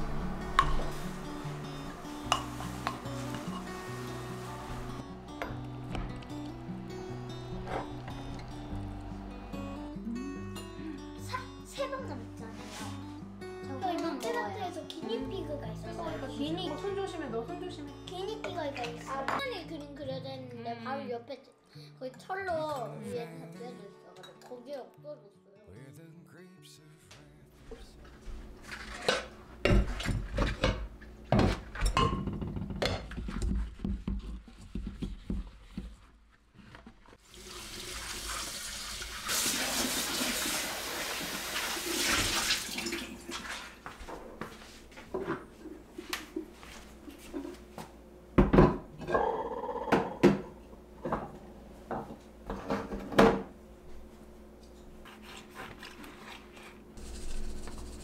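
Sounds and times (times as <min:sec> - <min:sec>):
tap running: 0:02.3 - 0:09.0.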